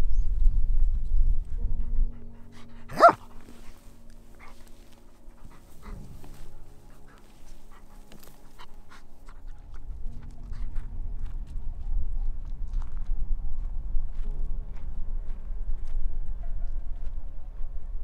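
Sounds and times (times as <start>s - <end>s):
low rumble: 0.0s - 4.4s, 8.7s - 18.0s
dog barking: 2.9s - 3.3s.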